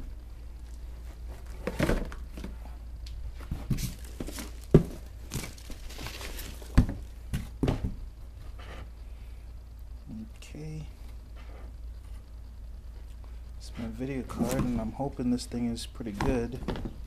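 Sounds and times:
packing peanuts rustling: 3.7 - 7.2.

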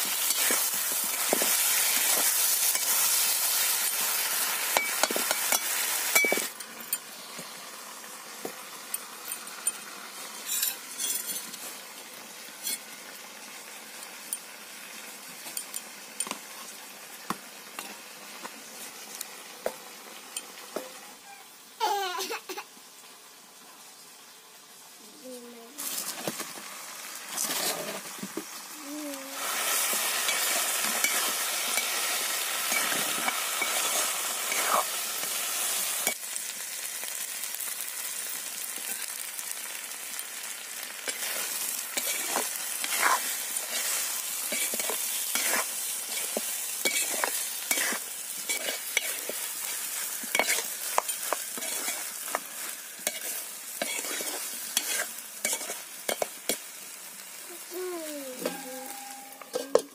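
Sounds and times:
curry sizzling in oil: 0.0 - 59.9
metal spatula scraping pan: 27.3 - 28.1, 29.8 - 32.1, 32.7 - 35.0, 41.1 - 56.3.

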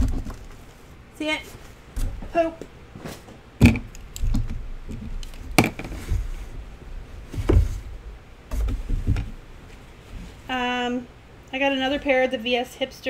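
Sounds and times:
knocks and thumps: 0.0 - 0.6, 1.9 - 10.3
rustling handling noise: 0.0 - 10.8.

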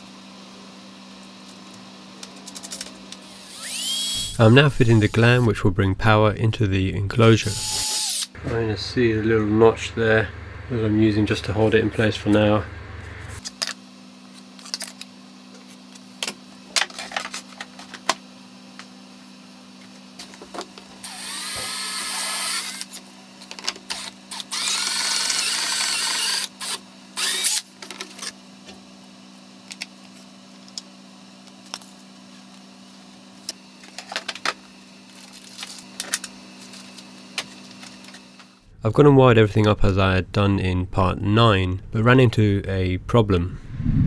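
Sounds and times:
cordless drill drilling acrylic: 3.2 - 5.4, 7.4 - 8.4, 21.0 - 22.9, 23.9 - 27.7.

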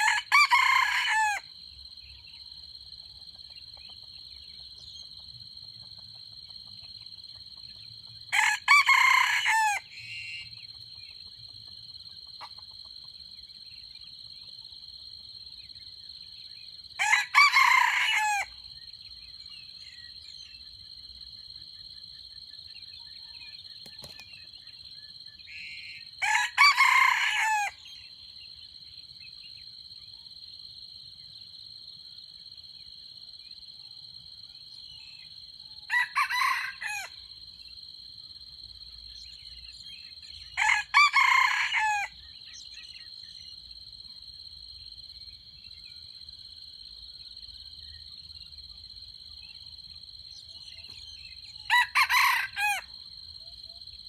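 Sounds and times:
rooster crowing: 0.0 - 1.4, 8.3 - 10.4, 17.0 - 18.6, 26.2 - 27.8, 35.9 - 37.2, 40.6 - 42.2, 51.6 - 52.9.

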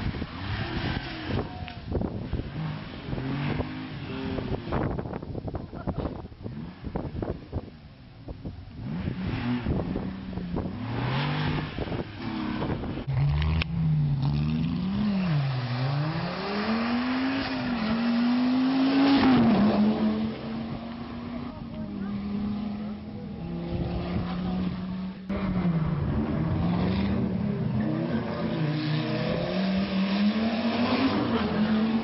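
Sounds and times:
rally car engine passing: 8.8 - 32.0.

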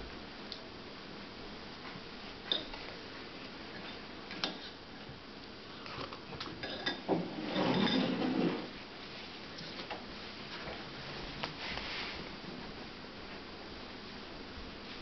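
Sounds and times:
scraping and rustling: 7.0 - 12.4.

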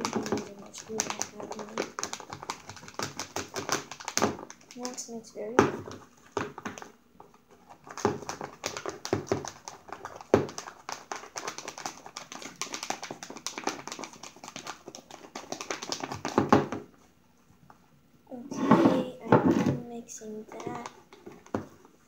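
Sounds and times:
stirrer scraping plastic tub: 0.0 - 6.8, 18.3 - 21.9.

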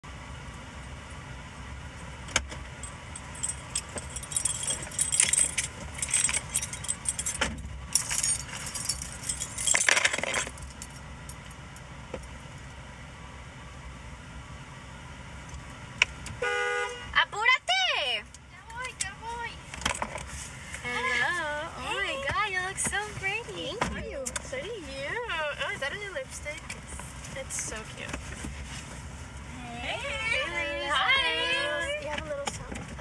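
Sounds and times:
keys jangling: 2.8 - 11.4.

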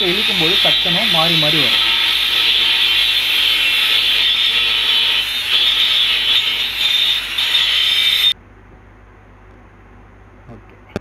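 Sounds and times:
angle grinder grinding metal: 0.0 - 8.4.

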